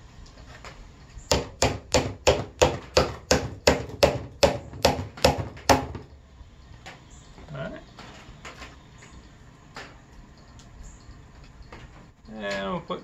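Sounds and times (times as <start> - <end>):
hammer driving a nail into wood: 1.3 - 6.1.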